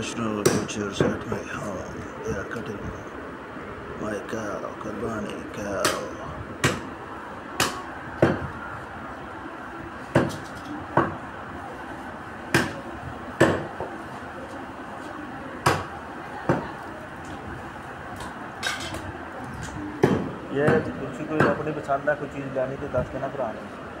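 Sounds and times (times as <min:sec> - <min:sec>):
cleaver chopping bones on wood: 0:06.6 - 0:06.8, 0:13.4 - 0:13.7.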